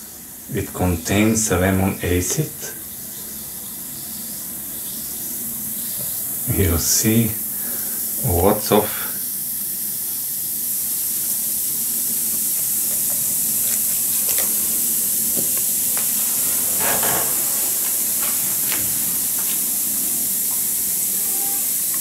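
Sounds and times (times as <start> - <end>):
tablet fizzing in water: 9.6 - 16.6.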